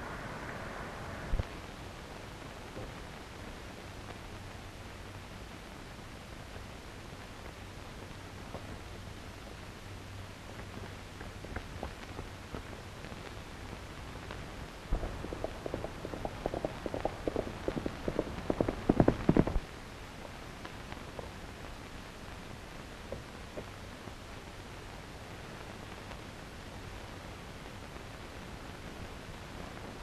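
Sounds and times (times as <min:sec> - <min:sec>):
film soundtrack hiss: 0:00.0 - 0:30.0
horse hoofbeats on rocky ground: 0:15.0 - 0:19.6.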